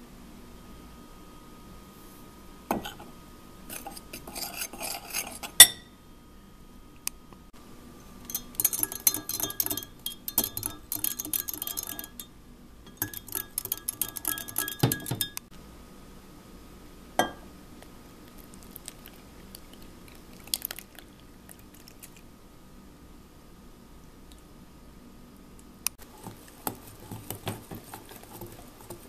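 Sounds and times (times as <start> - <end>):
whisk clinking against glass: 8.2 - 12.3, 12.9 - 15.5.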